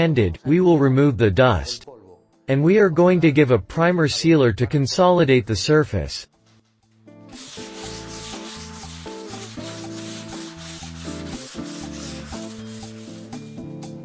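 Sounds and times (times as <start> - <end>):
background music: 0.0 - 14.0
sanding block scratching on wall: 7.3 - 13.6.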